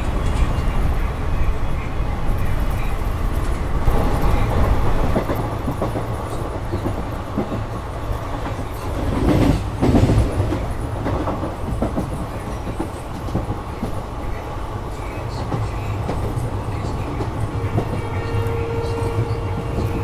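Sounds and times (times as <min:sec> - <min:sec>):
train rumbling on track: 0:00.0 - 0:20.0
wheels clacking over rail joints: 0:03.4 - 0:14.4.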